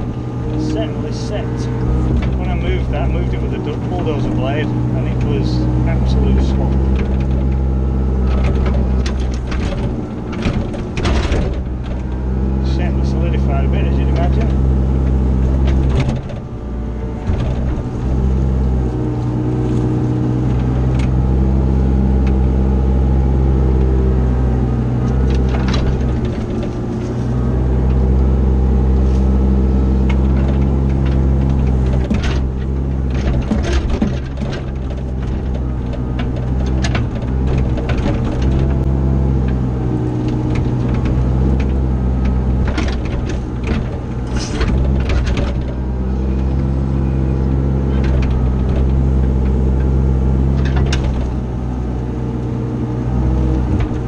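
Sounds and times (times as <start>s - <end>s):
diesel engine running: 0.0s - 54.0s
sharp knocks and scrapes: 40.2s - 46.7s.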